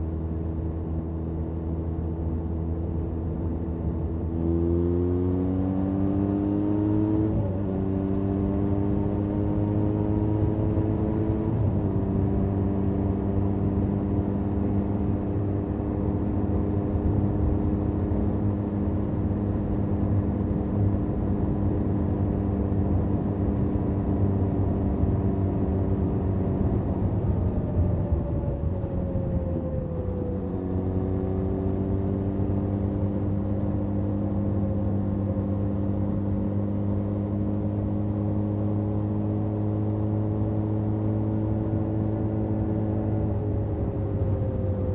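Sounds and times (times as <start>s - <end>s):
wind noise: 10.7s - 33.2s.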